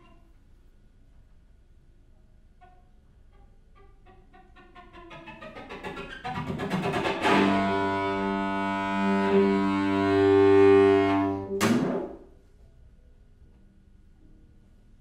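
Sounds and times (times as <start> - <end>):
string quartet playing: 5.2 - 11.7.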